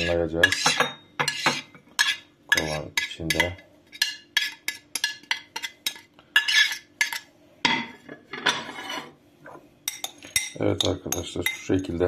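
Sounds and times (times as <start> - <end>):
metal spoon tapping and scraping: 0.0 - 7.3, 9.8 - 12.0.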